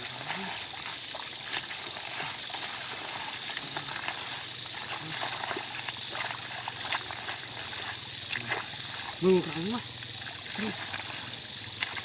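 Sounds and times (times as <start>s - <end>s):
hands splashing in muddy water: 0.0s - 12.0s.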